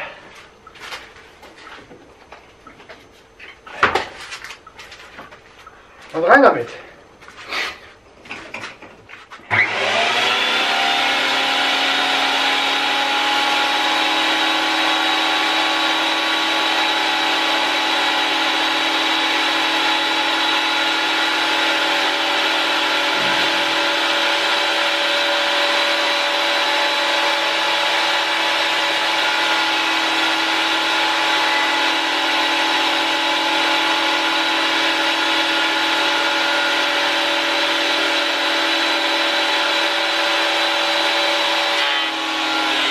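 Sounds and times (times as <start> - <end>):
planer whining: 9.5 - 42.9.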